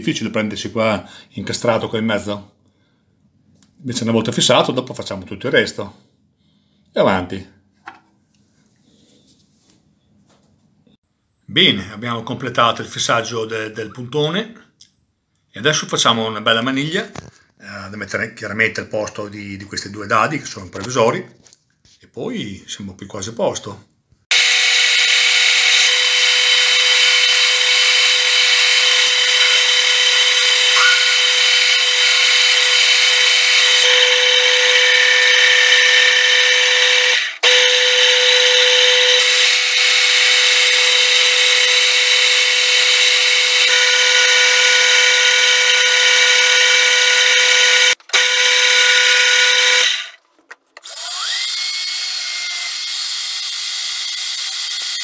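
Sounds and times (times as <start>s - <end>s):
metal lathe whining: 24.3s - 50.2s, 50.8s - 55.0s.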